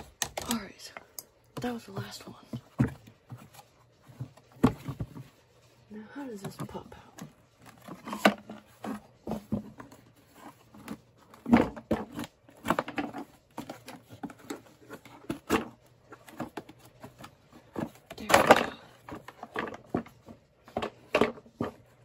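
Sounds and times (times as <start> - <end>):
hard plastic knocks and scrapes: 1.6 - 5.4.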